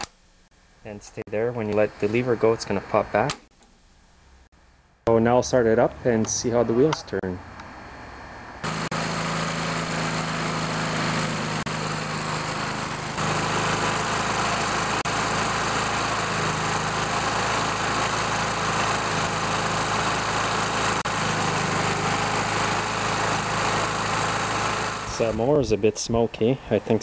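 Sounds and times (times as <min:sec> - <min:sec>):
lawn mower engine running: 0:08.0 - 0:25.6.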